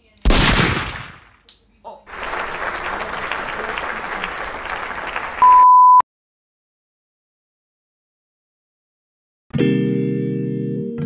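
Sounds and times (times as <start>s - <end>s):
people clapping: 2.1s - 5.5s
loud steady beep: 5.4s - 6.0s.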